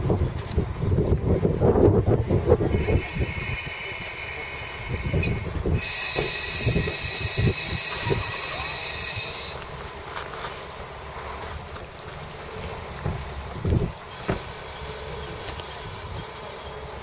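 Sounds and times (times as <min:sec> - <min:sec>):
diesel engine rumble: 0:00.0 - 0:17.0
high-pitched metallic squeal: 0:02.7 - 0:09.8, 0:14.1 - 0:17.0.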